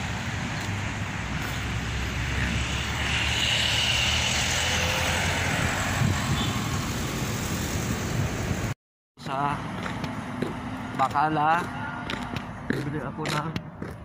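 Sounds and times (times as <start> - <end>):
cars driving past: 0.0 - 8.8.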